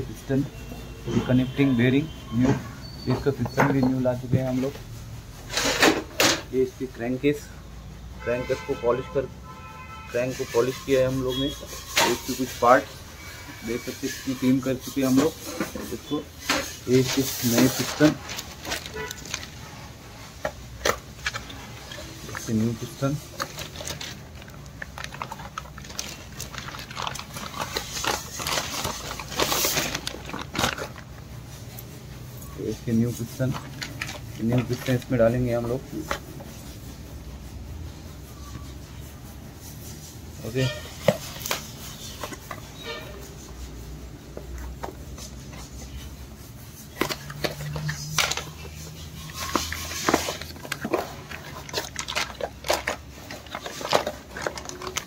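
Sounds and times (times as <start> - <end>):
plastic wrapping crinkling: 10.1 - 36.8, 40.4 - 55.0.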